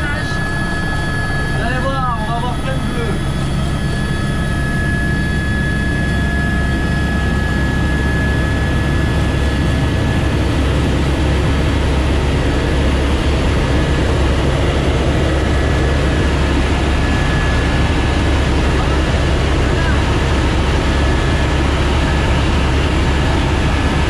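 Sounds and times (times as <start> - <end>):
thin high whine: 0.0 - 7.9
helicopter rotor and turbine drone: 0.0 - 24.0.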